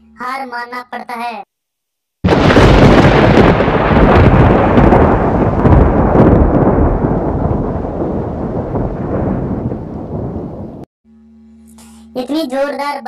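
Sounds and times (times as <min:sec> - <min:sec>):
thunder rumbling: 0:02.2 - 0:10.9
heavy rain: 0:02.3 - 0:10.8.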